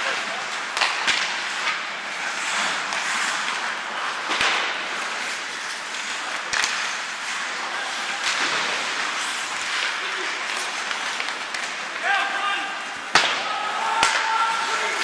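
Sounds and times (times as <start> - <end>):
crowd noise: 0.0 - 15.0
hockey stick hitting puck: 0.0 - 15.0
skates hissing on ice: 0.0 - 15.0.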